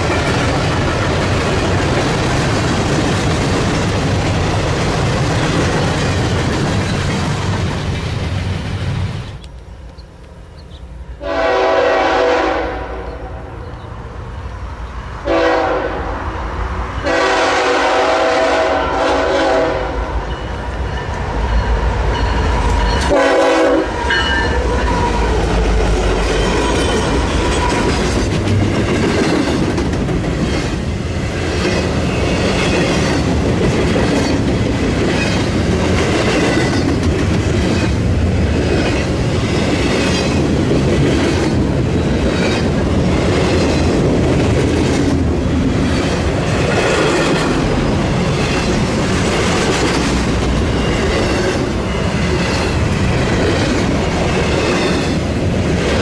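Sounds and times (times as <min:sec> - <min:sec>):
train wheels clattering on rails: 0:00.0 - 0:09.5, 0:20.2 - 0:56.0
diesel locomotive horn blasts: 0:11.1 - 0:13.7, 0:15.2 - 0:16.2, 0:17.0 - 0:20.4, 0:23.0 - 0:24.8.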